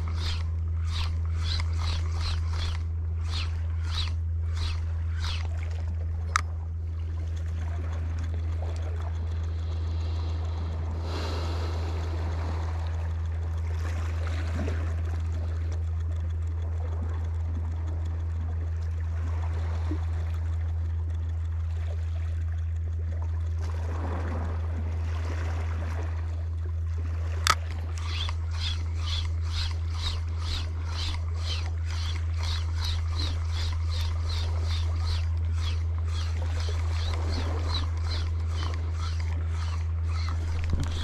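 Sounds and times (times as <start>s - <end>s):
sharp click: 0.0s - 6.5s, 27.4s - 41.0s
seawater lapping against rocks: 0.0s - 15.9s, 17.8s - 41.0s
steady low hum: 0.0s - 41.0s.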